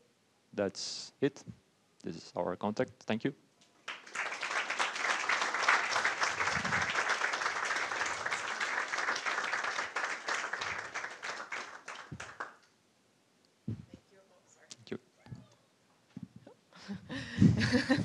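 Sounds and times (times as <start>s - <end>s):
audience applauding: 3.8s - 12.6s.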